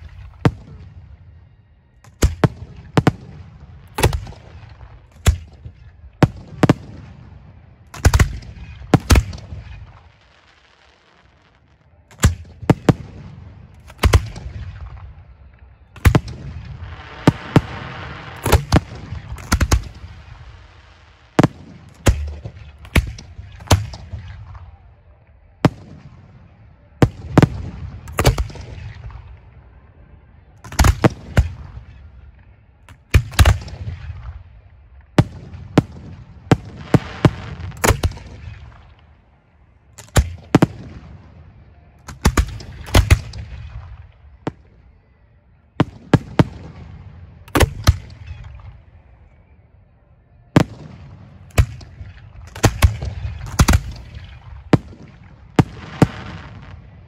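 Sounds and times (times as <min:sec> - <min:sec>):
fireworks shells firing: 0:16.0 - 0:24.2, 0:51.4 - 0:56.8.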